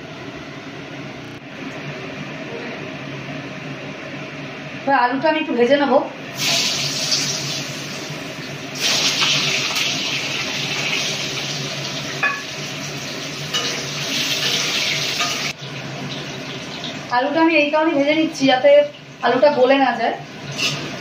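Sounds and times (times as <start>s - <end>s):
potatoes sizzling in hot oil: 6.3s - 21.0s.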